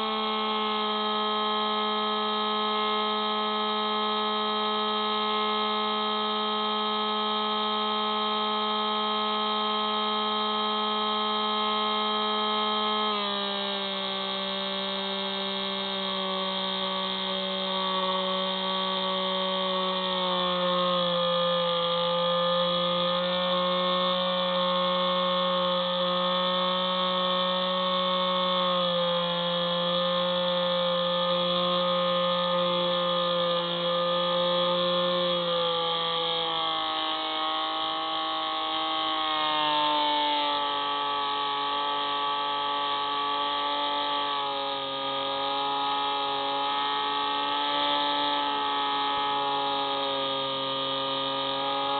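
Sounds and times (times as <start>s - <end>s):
electric plane motor whining: 0.0s - 51.9s.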